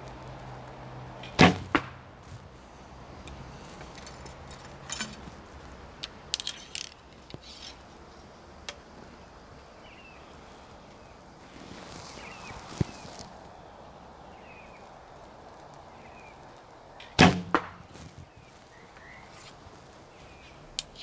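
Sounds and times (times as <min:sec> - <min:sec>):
arrow striking target: 0:01.2 - 0:02.0, 0:17.0 - 0:17.8
light clicks and rattles: 0:03.2 - 0:05.4, 0:06.0 - 0:07.9.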